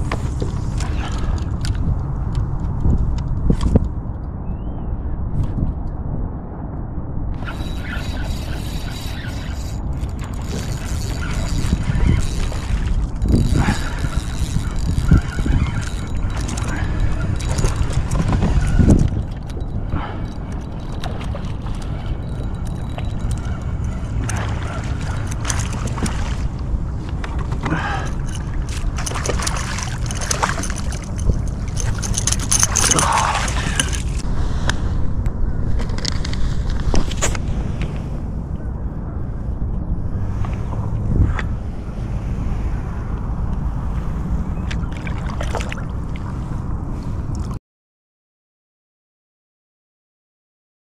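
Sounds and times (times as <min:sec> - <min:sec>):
wind on microphone: 0:00.0 - 0:47.6
water lapping: 0:07.4 - 0:34.2, 0:44.7 - 0:47.4
fish thrashing at surface: 0:28.0 - 0:34.2.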